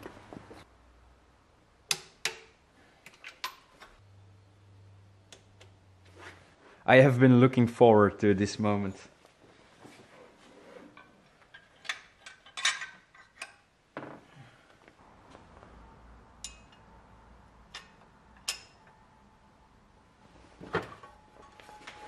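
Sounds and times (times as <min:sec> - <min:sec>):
metal parts clicking and knocking: 0:11.0 - 0:13.6.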